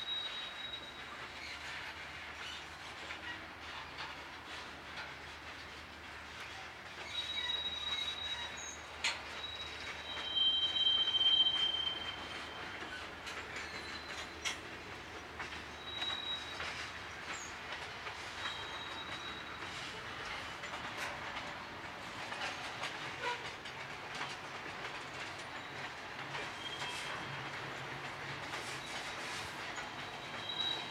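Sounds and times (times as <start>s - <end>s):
wheels clacking over rail joints: 1.4s - 30.9s
high-pitched wheel squeals: 7.0s - 14.4s, 15.7s - 17.5s, 18.4s - 19.8s, 30.0s - 30.9s.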